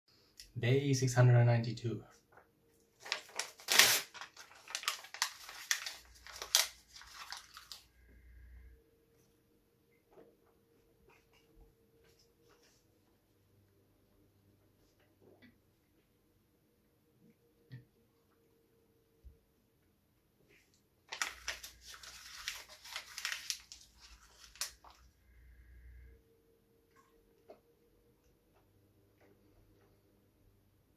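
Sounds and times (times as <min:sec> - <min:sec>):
photo paper tearing and crunching: 0:03.0 - 0:07.8, 0:21.1 - 0:25.0.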